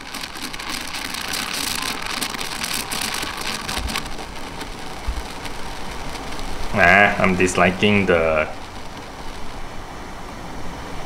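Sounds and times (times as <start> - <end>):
steam wand frothing milk: 0.0 - 4.6.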